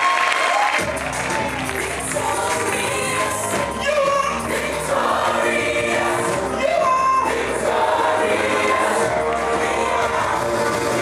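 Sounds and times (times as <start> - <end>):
gospel group singing in harmony: 1.9 - 11.0.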